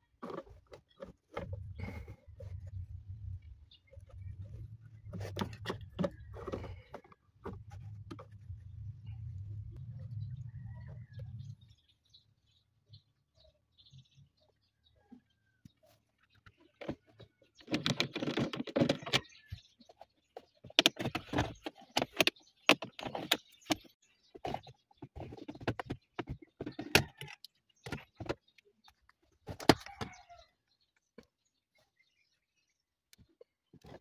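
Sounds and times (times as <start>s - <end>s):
plastic clicks and rattles: 16.4s - 19.6s, 20.4s - 30.2s.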